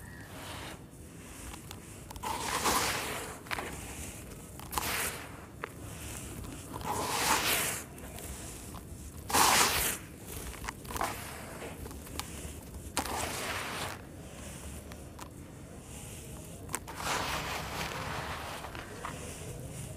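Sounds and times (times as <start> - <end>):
gritty sand pouring into plastic tub: 9.2 - 10.4, 13.1 - 14.0, 16.2 - 19.5.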